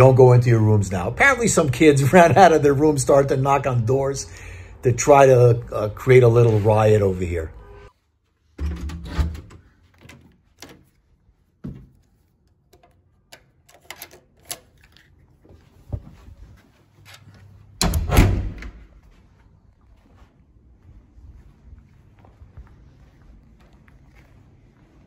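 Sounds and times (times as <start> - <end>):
door thud: 8.6 - 9.6, 11.6 - 12.0, 17.8 - 18.9
door lock clicks and knocks: 8.6 - 10.8, 17.8 - 18.8.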